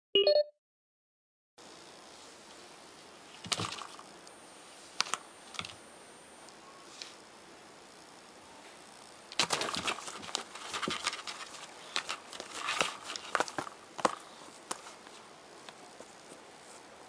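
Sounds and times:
cat scratching foam mat: 9.4s - 15.3s.

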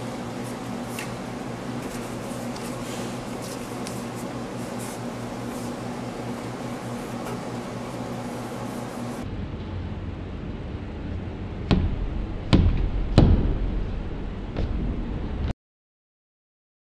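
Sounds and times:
low hum with hiss: 0.0s - 15.5s
sharp knocks: 11.6s - 14.8s.

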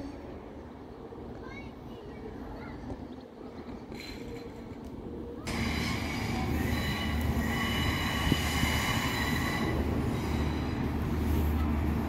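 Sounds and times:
train engines rumbling: 0.0s - 12.0s
train wheels squealing: 5.5s - 11.8s.

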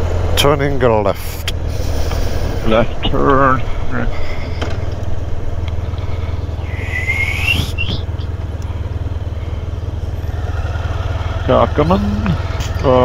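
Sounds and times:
motorcycle engine running: 0.0s - 13.0s
rising high tone: 6.6s - 8.2s.

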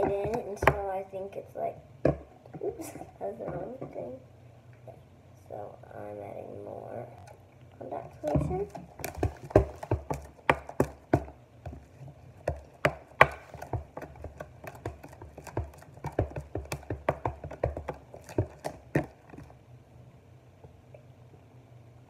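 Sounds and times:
spoon knocking plastic tub: 8.3s - 11.8s, 12.5s - 19.5s.

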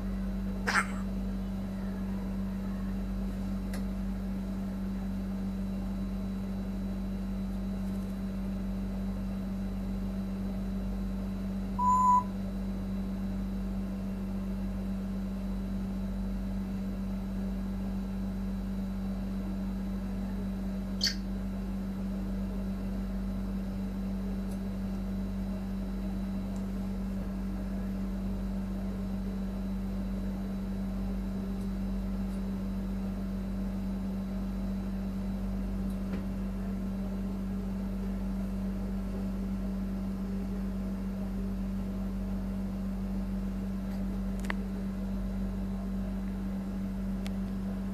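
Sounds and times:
parrot whistling: 21.0s - 21.2s.

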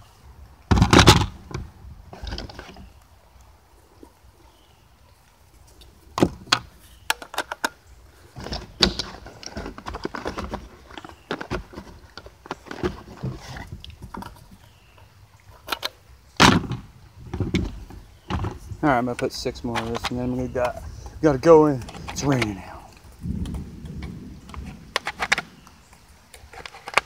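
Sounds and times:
shotgun handling clicks and knocks: 5.8s - 14.7s, 15.5s - 27.0s.

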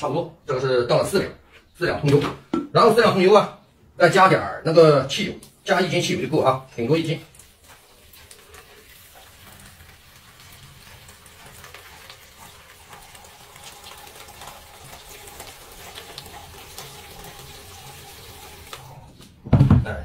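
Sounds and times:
liquid pouring into basin: 6.8s - 19.1s.

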